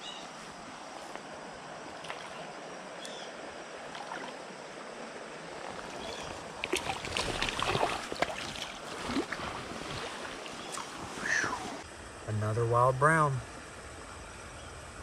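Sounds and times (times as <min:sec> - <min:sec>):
creek water running: 0:00.0 - 0:15.0
fish splashing: 0:05.6 - 0:11.8.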